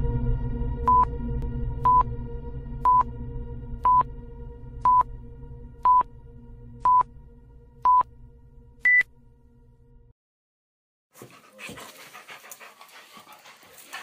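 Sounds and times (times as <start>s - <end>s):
low drone: 0.0s - 10.1s
electronic countdown beeps: 1.8s - 2.1s, 2.8s - 3.1s, 3.8s - 4.1s, 4.8s - 5.1s, 5.8s - 6.1s, 6.8s - 7.1s, 7.8s - 8.1s, 8.8s - 9.1s.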